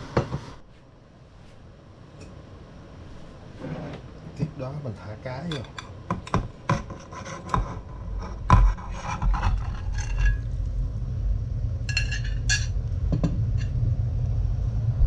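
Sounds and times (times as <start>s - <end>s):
metal spoon scraping a plate: 6.7s - 10.5s
low rumble: 7.9s - 15.0s.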